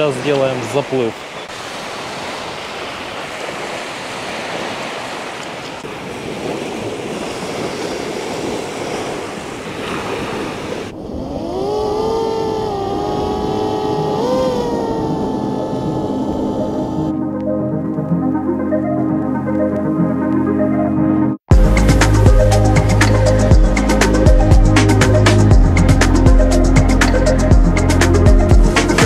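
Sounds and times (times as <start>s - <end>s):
surf washing onto beach: 0.0s - 17.1s
wind on microphone: 1.6s - 17.1s
drone propeller whine: 10.9s - 29.0s.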